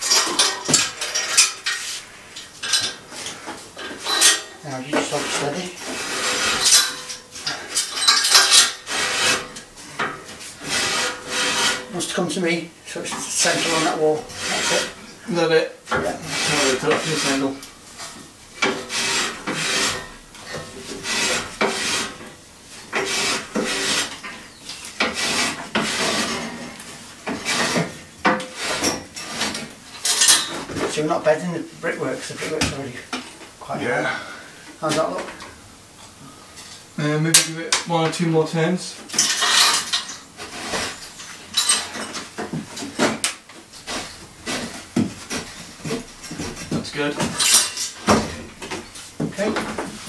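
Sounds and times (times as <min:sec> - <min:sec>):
rasping metal-on-metal scrapes: 0:00.0 - 0:12.2, 0:13.0 - 0:15.0, 0:16.0 - 0:30.7
metallic clinks and knocks: 0:06.6 - 0:08.8, 0:30.0 - 0:30.5, 0:39.1 - 0:40.3, 0:41.1 - 0:42.3, 0:47.2 - 0:48.8.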